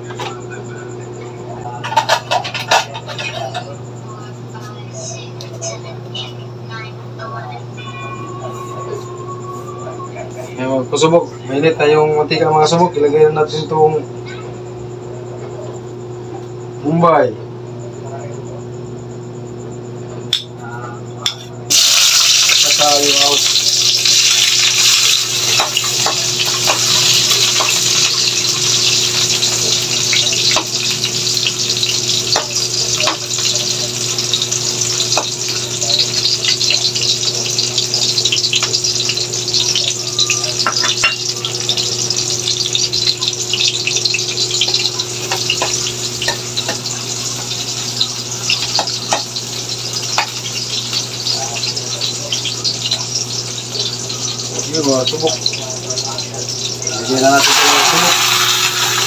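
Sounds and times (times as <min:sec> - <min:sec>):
onions sizzling in hot oil: 0:21.7 - 0:59.0.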